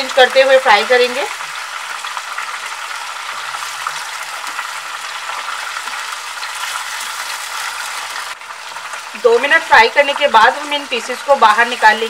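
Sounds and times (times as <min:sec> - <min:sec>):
fish sizzling in hot oil: 0:00.0 - 0:12.0
wooden spatula turning food in pan: 0:01.4 - 0:08.3.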